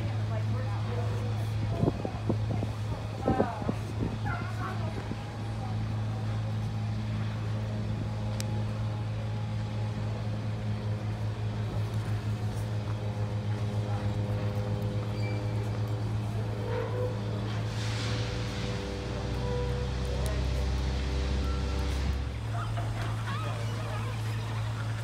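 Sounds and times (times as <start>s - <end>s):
boat engine throbbing hum: 0.0s - 25.0s.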